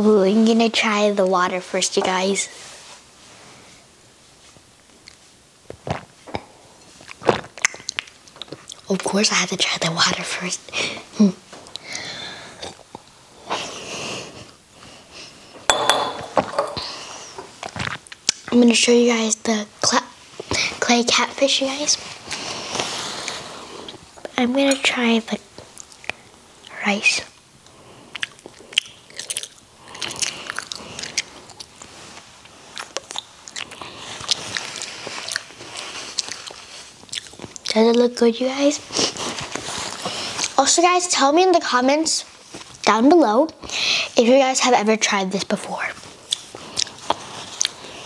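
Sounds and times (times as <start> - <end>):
wet mouth clicks chewing rice: 7.0 - 8.8, 28.1 - 37.7
nasal breathing: 11.8 - 12.8
glass set down on glass table: 15.7 - 16.8.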